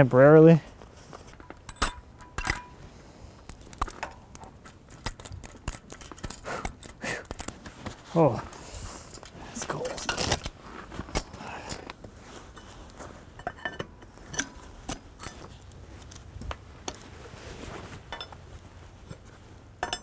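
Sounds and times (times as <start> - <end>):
metallic clinks of wrench: 1.5 - 2.8, 3.5 - 7.6, 8.5 - 11.9, 19.8 - 20.0.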